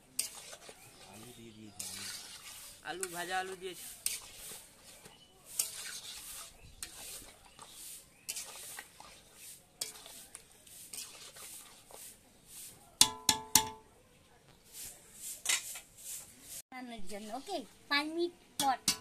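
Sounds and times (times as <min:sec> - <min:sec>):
spatula scraping a pan: 0:00.0 - 0:13.0, 0:14.6 - 0:16.6.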